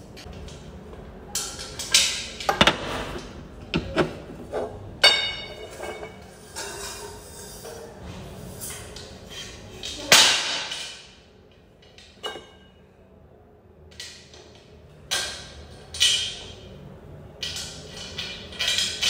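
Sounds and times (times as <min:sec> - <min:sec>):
metal tubes clanking and knocking: 0:01.3 - 0:06.7.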